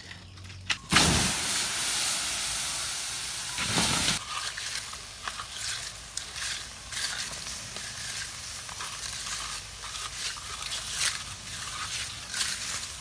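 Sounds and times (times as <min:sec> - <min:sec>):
loud steam-like hiss: 0:00.9 - 0:04.2.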